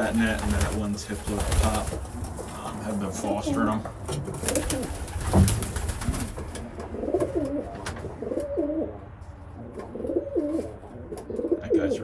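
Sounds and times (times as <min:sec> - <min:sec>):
pigeon cooing: 0:06.9 - 0:08.9, 0:09.6 - 0:12.0.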